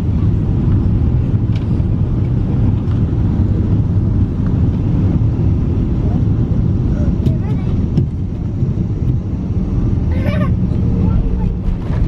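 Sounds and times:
jet engines and airflow rumble: 0:00.0 - 0:12.0.

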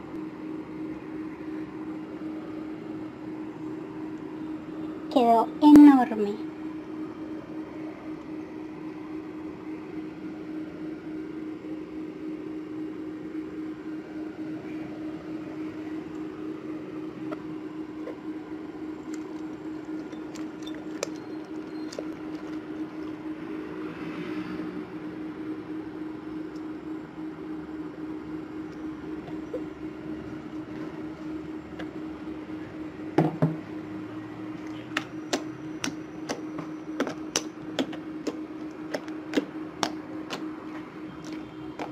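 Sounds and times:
steady hum: 0:00.0 - 0:41.9
fingers poking slime clicks: 0:34.9 - 0:40.4.

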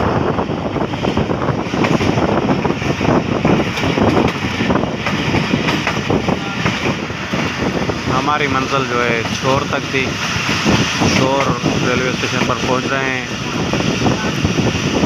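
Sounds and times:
train wheels clattering on rails: 0:01.0 - 0:07.7, 0:08.6 - 0:12.9.

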